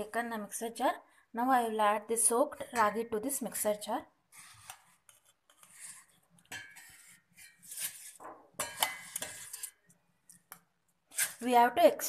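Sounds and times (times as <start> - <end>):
spoon scraping steel bowl: 4.4 - 10.5, 11.1 - 11.7.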